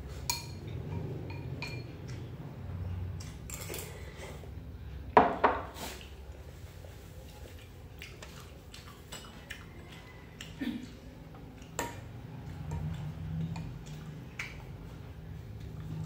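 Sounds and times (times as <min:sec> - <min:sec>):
low steady hum: 0:00.0 - 0:16.0
spoon tapping ceramic bowls: 0:00.3 - 0:02.2.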